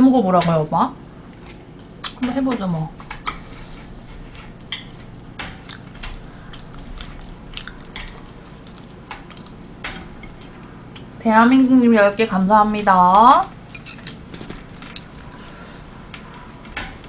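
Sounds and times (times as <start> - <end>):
chopsticks tapping food and grill: 0.3 - 0.7, 1.3 - 11.1, 12.6 - 17.0
chewing: 3.2 - 11.1.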